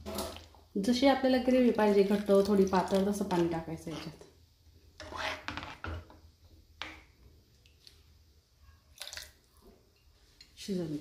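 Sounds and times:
ladle scraping a pan: 3.8 - 4.2, 5.0 - 6.0.

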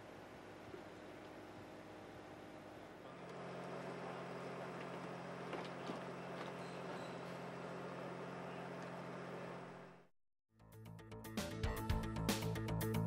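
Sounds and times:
construction equipment engine running: 0.0 - 10.1.

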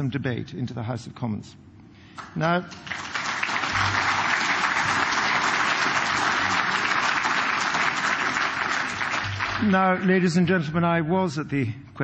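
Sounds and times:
audience applauding: 2.2 - 10.1.

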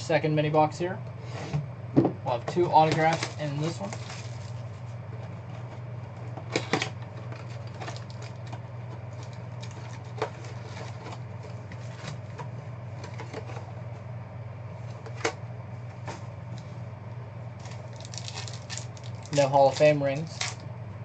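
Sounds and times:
knocks on tabletop: 2.0 - 2.2
cardboard and card packs rustling: 2.5 - 5.7, 6.5 - 13.7, 17.6 - 20.6.

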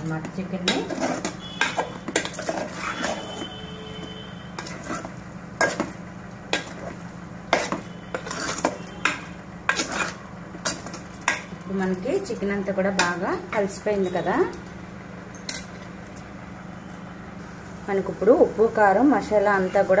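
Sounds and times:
spoon scraping metal pot: 0.3 - 11.5.

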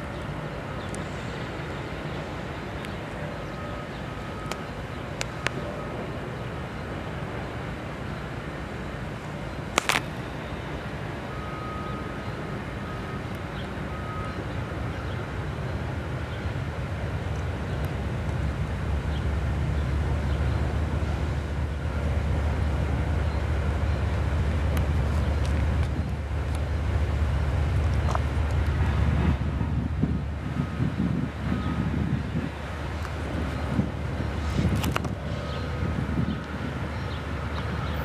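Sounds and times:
diesel locomotive engine rumble: 0.0 - 38.0
sharp click: 9.8 - 10.1.

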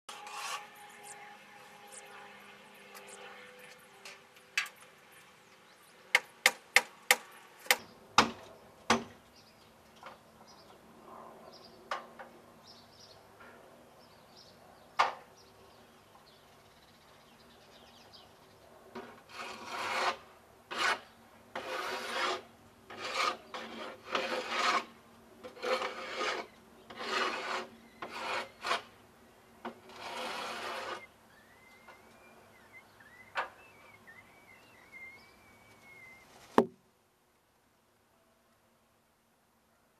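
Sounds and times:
sharp knocks on wood: 6.2 - 9.2, 36.6 - 36.8.

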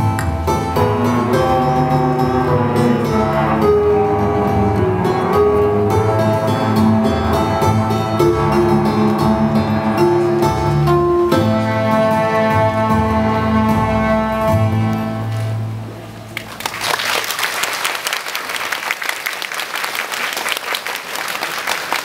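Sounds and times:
cello ensemble chord: 0.0 - 16.2
audience applause: 16.3 - 22.0.

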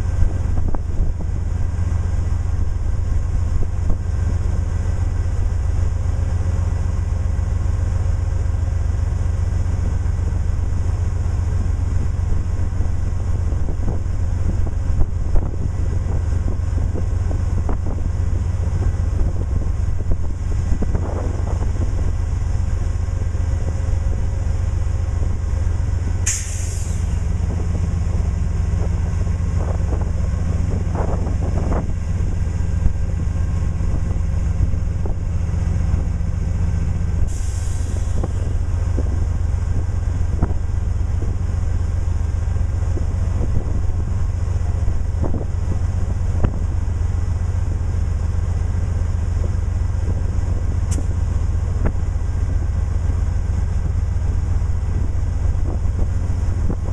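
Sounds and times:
diesel locomotive idling rumble: 0.0 - 56.9
air brake hisses: 26.2 - 27.2, 37.2 - 38.4.

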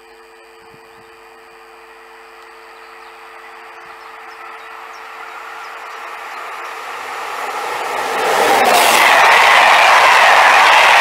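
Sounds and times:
train rolling noise: 3.8 - 11.0.

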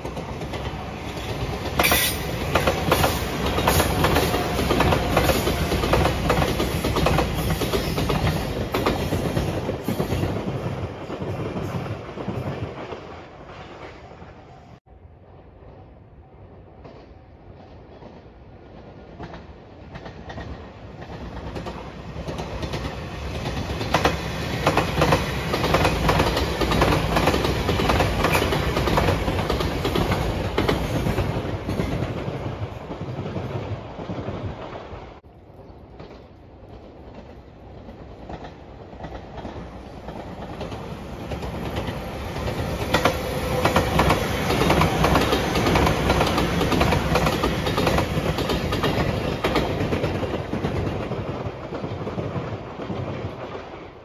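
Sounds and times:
electric train passing: 0.0 - 54.0
wheels clicking over rail joints: 35.9 - 53.8.

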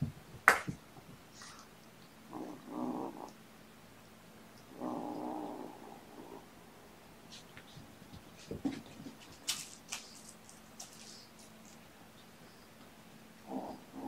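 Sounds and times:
kitten growling: 2.3 - 3.4, 4.7 - 6.6, 13.4 - 14.0.

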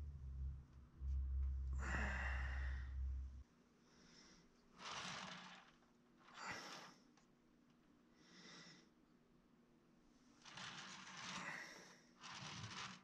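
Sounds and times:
person breathing softly: 1.2 - 5.6, 8.1 - 9.0.

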